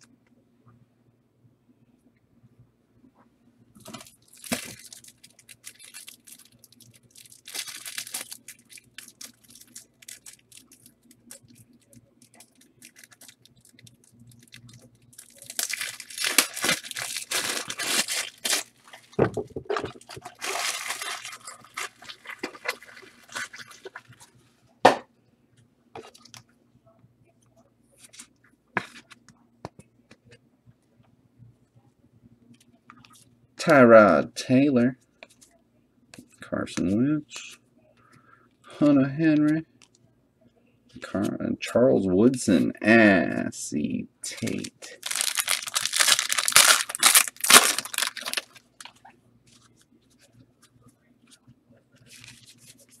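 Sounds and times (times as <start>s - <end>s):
wrappers tearing and crinkling: 3.8s - 19.2s, 19.8s - 24.2s, 44.4s - 49.1s.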